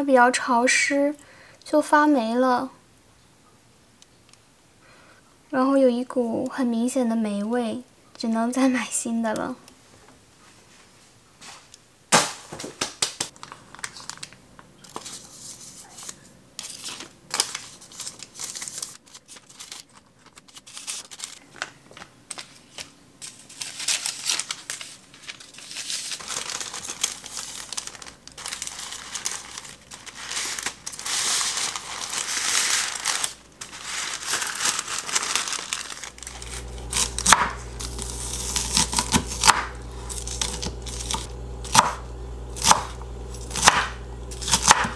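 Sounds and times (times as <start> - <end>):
baking paper crinkling: 12.6 - 44.9
low steady hum: 36.0 - 44.9
knife chopping on cutting board: 37.0 - 42.0, 42.6 - 44.9.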